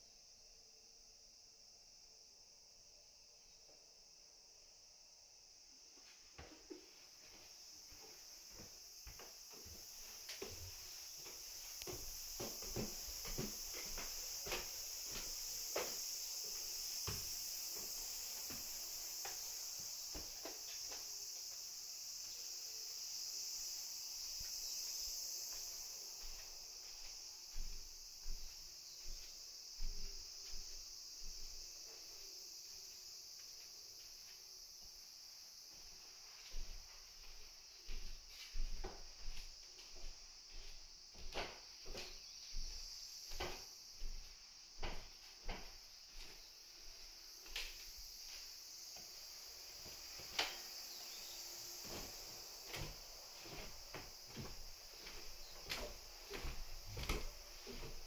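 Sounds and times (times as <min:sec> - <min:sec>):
high-pitched hiss: 0:00.0 - 0:58.0
footsteps on wooden stairs: 0:06.3 - 0:21.7, 0:25.5 - 0:31.6, 0:36.4 - 0:58.0.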